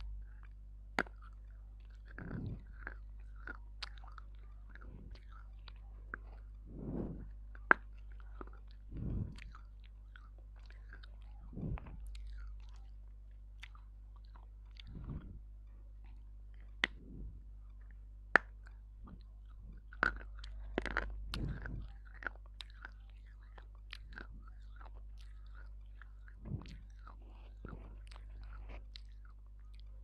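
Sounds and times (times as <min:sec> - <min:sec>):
crunchy chewing: 0:00.0 - 0:30.0
low electrical hum: 0:00.0 - 0:30.0.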